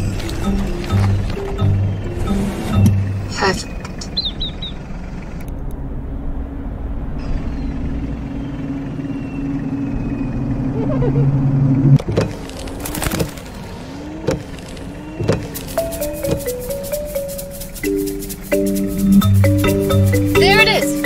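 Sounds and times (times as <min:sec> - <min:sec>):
car engine droning: 0:00.0 - 0:21.0
wavering tone: 0:05.6 - 0:12.0, 0:15.0 - 0:21.0.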